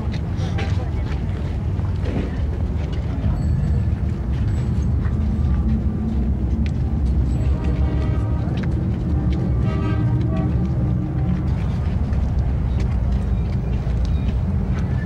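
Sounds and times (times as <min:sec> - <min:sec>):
crowd murmur: 0:00.0 - 0:15.0
low street rumble: 0:00.0 - 0:15.0.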